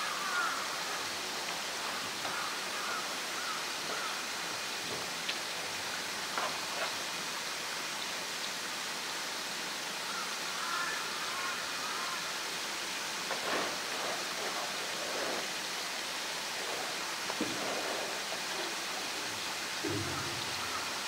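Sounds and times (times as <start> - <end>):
steady rushing noise: 13.1 - 21.0
soft knocks: 19.8 - 20.9.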